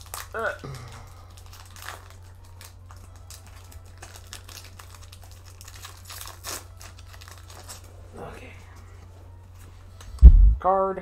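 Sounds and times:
foil wrapper crinkling and tearing: 0.0 - 8.0
low hum: 10.2 - 10.7.

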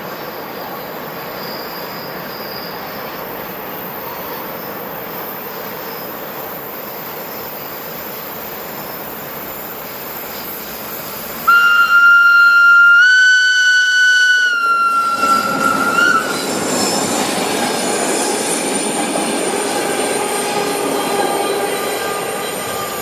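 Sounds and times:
train rolling on track: 0.0 - 23.0
train horn: 11.5 - 16.4.

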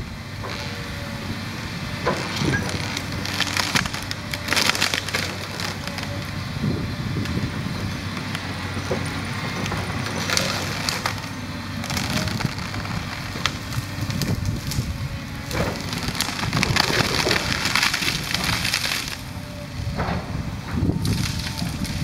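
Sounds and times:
excavator diesel engine under load: 0.0 - 22.0
branches crackling and crashing: 2.0 - 6.4, 8.0 - 19.4, 21.0 - 22.0
wood cracking and splintering: 2.0 - 6.4, 8.1 - 19.4, 20.8 - 22.0.

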